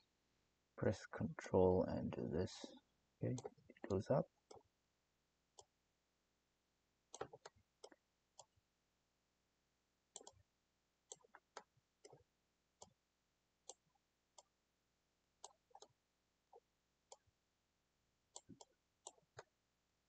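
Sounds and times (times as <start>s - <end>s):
computer mouse buttons clicking: 7.1s - 8.5s, 10.2s - 10.4s, 18.4s - 19.5s.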